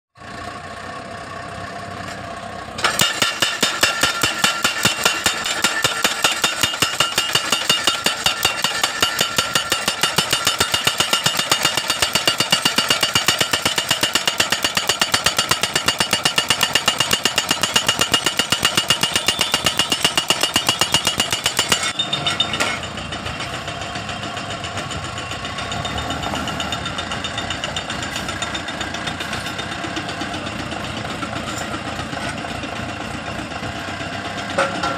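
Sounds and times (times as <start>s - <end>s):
machine engine running: 0.3s - 34.9s
post driver hammer pounding: 2.8s - 34.9s.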